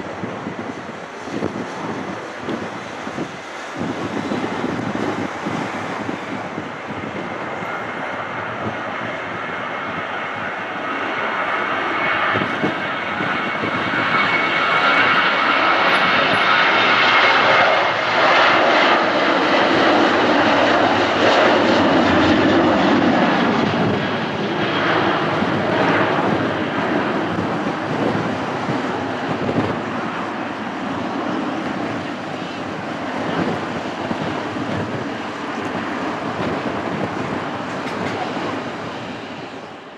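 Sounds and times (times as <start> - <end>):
jet engines at takeoff: 0.0 - 39.9
high fan whine: 23.4 - 39.9.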